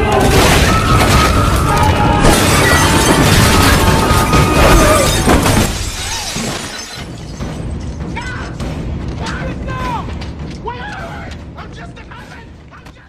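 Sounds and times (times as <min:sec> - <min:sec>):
glass shattering: 0:00.2 - 0:08.0
film score music: 0:06.8 - 0:13.0.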